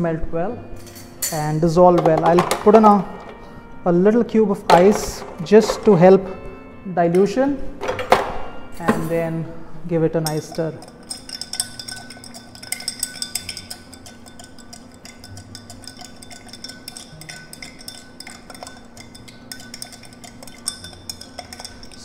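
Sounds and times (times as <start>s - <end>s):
ice and spoon clinking in glass: 10.2s - 22.0s.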